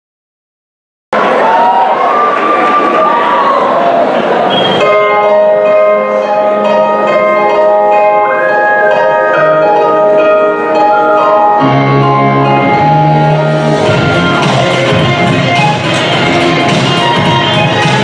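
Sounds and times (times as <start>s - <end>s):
low bass line: 11.6s - 18.0s
pop dance track: 12.6s - 18.0s.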